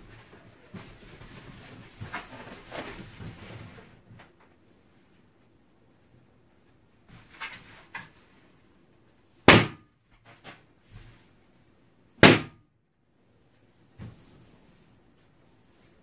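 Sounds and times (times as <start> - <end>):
rubbing and rustling of balloons: 0.0 - 9.2, 13.4 - 16.0
balloons bursting with loud bangs: 9.4 - 9.9, 12.2 - 12.6.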